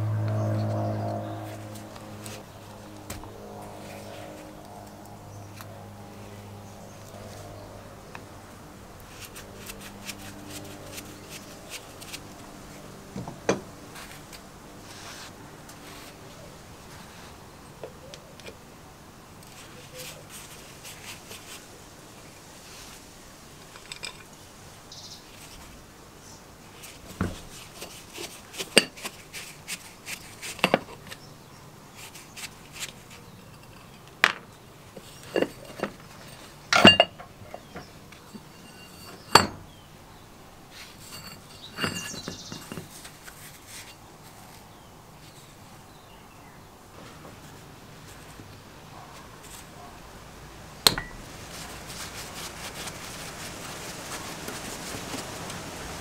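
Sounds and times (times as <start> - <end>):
tool clinking on metal cover: 35.0 - 39.6, 41.0 - 43.0, 50.8 - 51.2
metal cover scraping: 35.0 - 39.8, 40.8 - 44.0.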